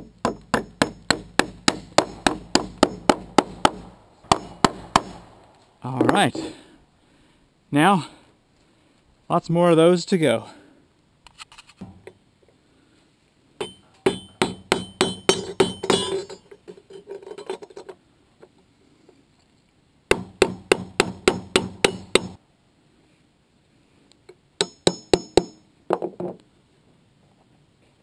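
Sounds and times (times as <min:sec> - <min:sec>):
hammer striking nails into metal: 0:00.0 - 0:06.5, 0:13.6 - 0:16.4, 0:20.1 - 0:22.4, 0:24.6 - 0:25.6.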